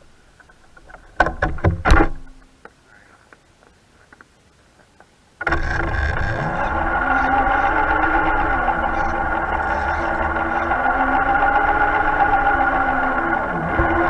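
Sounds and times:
sharp knocks and rattles: 0.4 - 2.5
loud distorted electric guitar music: 5.5 - 14.0.

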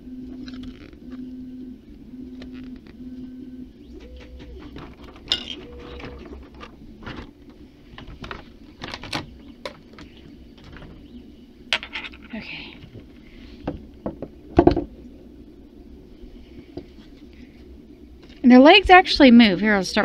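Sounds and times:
low cooing tone: 0.0 - 7.2.

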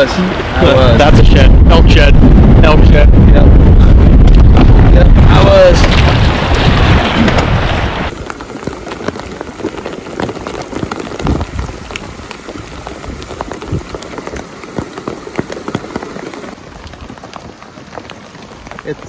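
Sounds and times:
rain falling on a river: 0.0 - 0.9, 5.8 - 19.0.

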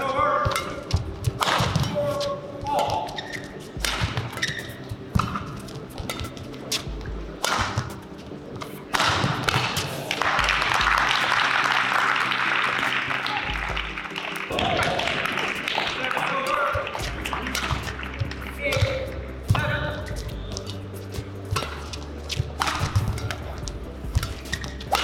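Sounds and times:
racket striking shuttlecock: 0.0 - 10.8, 14.5 - 20.8, 21.5 - 25.0
crowd applause: 10.1 - 18.6.

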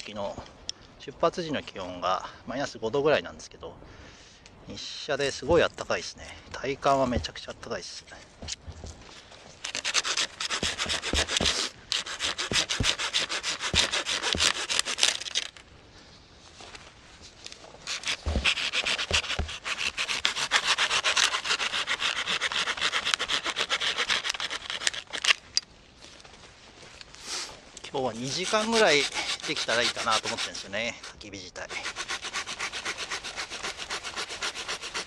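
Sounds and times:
hand saw cutting wood: 9.6 - 15.5, 17.9 - 25.4, 28.0 - 35.0.

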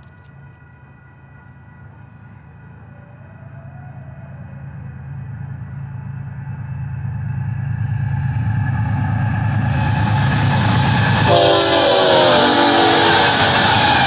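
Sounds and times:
diesel locomotive engine rumble: 0.0 - 14.0
train wheel noise: 0.0 - 14.0
train horn: 10.4 - 14.0.

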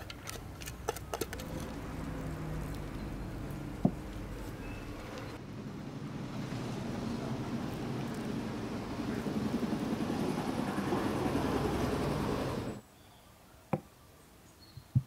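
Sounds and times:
hand squeezing chopped onion: 0.0 - 3.0.

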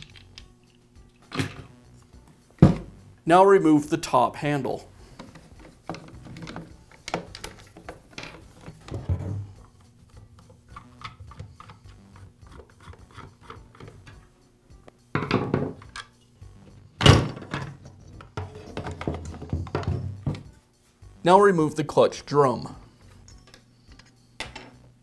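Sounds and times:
loud thunk on wooden workbench: 2.6 - 2.9, 15.2 - 15.8
plastic housing knocking and scraping: 17.3 - 20.4.

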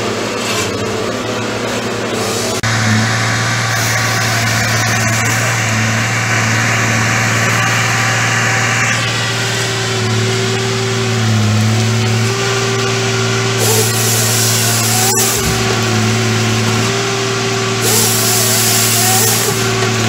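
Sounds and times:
harvester diesel engine running: 0.0 - 20.0
hiss: 2.2 - 9.6, 13.5 - 16.8, 17.7 - 20.0.

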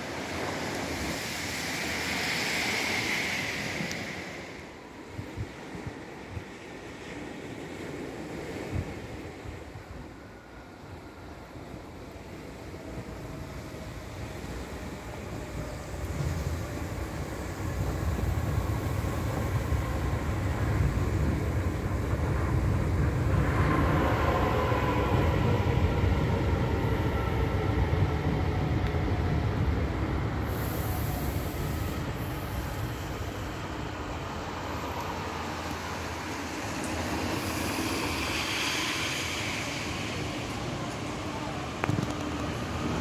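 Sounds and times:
train wheels and motors rumbling: 11.7 - 43.0.

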